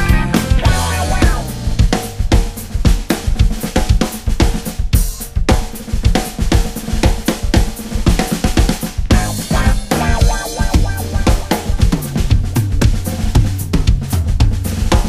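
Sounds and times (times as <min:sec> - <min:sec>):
song with driving drum beat: 0:00.0 - 0:15.0.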